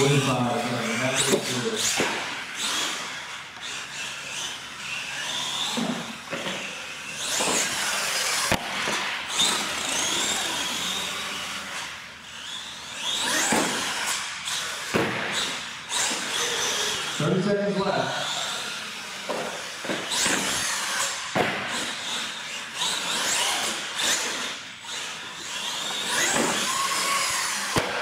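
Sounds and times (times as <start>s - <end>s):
electric toy truck motors whining: 0.0s - 28.0s.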